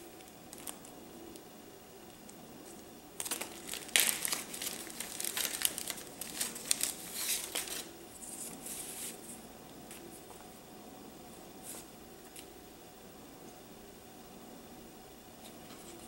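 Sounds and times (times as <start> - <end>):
plastic bags and paper crinkling: 0.5 - 1.0, 3.2 - 9.0.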